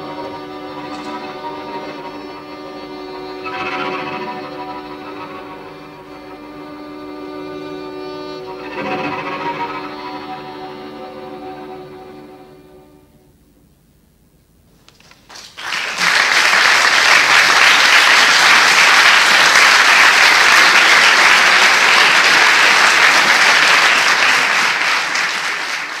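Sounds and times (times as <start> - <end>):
audience applause: 15.1 - 26.0.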